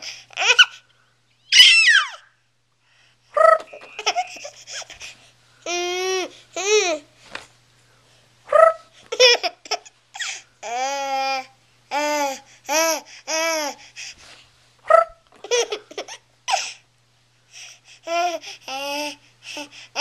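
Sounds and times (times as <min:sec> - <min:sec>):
baby laughing: 0:00.4 - 0:00.8, 0:03.4 - 0:05.1, 0:08.5 - 0:13.8, 0:14.9 - 0:16.8.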